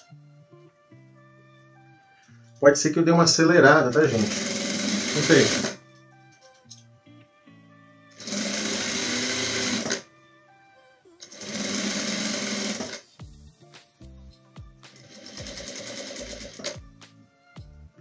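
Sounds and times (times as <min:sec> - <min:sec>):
sewing machine stitching: 0:03.8 - 0:05.8, 0:08.2 - 0:10.0, 0:11.2 - 0:13.1, 0:14.9 - 0:16.8.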